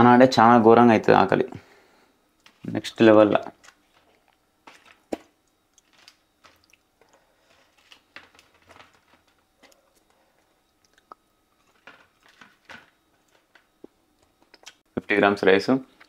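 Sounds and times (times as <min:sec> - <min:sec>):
person chewing food: 0:05.1 - 0:08.1, 0:09.6 - 0:12.4, 0:13.7 - 0:14.8.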